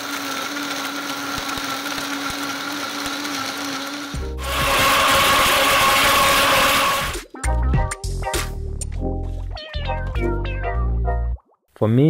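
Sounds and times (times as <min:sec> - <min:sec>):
blender motor whirring: 0:00.0 - 0:07.2.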